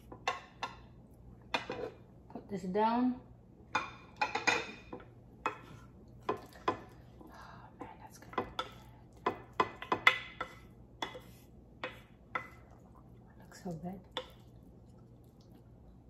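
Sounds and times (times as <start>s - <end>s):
wooden spoon scraping a plate: 1.5s - 2.0s, 9.6s - 12.7s.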